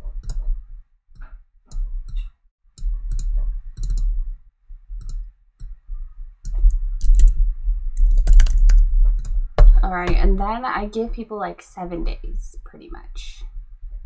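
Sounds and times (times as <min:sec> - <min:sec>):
computer mouse clicks: 0:00.1 - 0:00.5, 0:01.2 - 0:04.2, 0:05.0 - 0:05.8, 0:06.4 - 0:07.4
keyboard keystrokes: 0:02.8 - 0:04.1, 0:06.5 - 0:07.4, 0:08.0 - 0:09.4.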